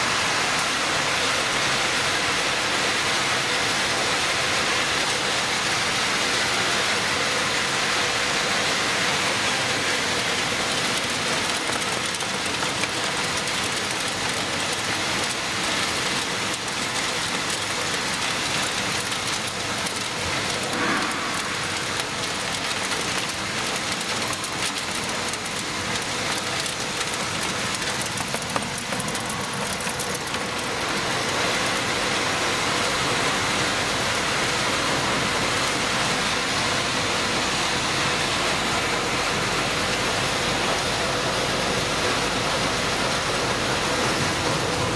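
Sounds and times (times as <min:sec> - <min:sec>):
dense machine noise: 0:00.0 - 0:44.9
metal pieces rattling off conveyor: 0:10.2 - 0:31.1.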